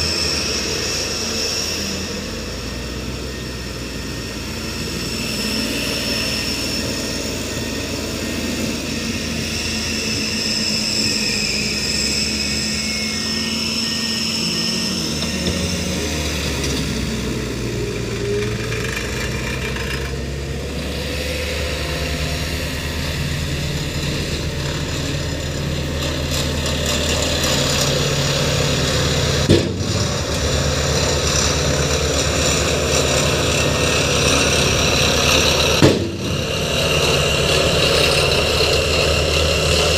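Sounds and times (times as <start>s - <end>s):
diesel truck engine running: 14.4s - 39.9s
sharp knock: 29.4s - 30.1s, 35.8s - 36.4s.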